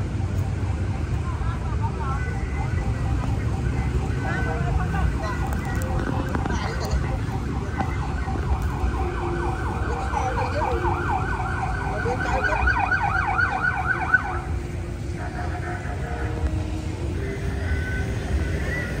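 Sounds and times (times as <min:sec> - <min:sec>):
emergency siren yelping: 0:00.0 - 0:19.0
street traffic rumble: 0:00.0 - 0:19.0.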